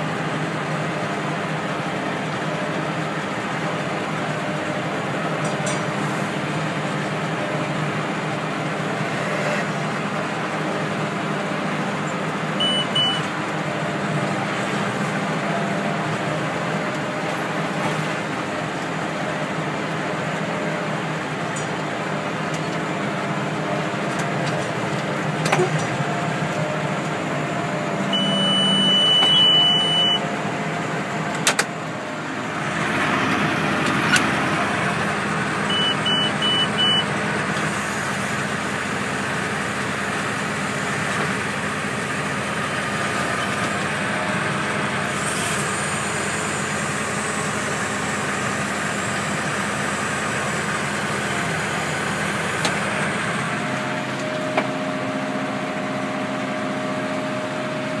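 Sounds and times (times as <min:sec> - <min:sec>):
tractor engine running under load: 0:00.0 - 0:58.0
short high electronic beeps: 0:28.2 - 0:30.2.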